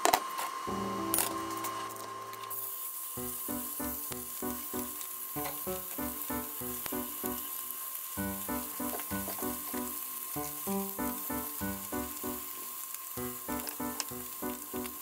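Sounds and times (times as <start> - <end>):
chicken sizzling in oil: 0.5 - 15.0
background music with beat: 3.2 - 7.4, 8.2 - 12.4.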